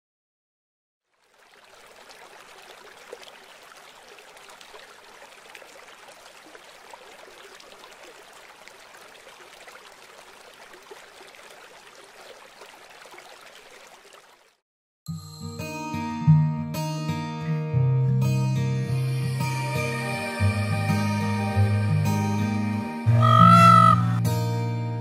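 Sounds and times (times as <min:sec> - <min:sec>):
rain falling: 0:01.1 - 0:14.5.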